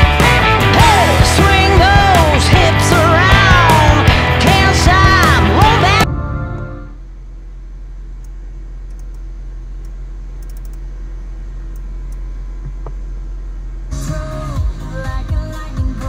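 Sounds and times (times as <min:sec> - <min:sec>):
pop music through car speakers: 0:00.0 - 0:06.9, 0:13.9 - 0:16.0
car cabin hum: 0:01.4 - 0:16.0.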